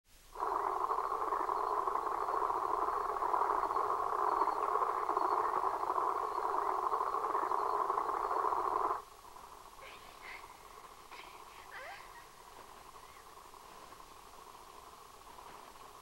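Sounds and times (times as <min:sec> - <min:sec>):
rushing electronic drone: 0:00.4 - 0:11.1.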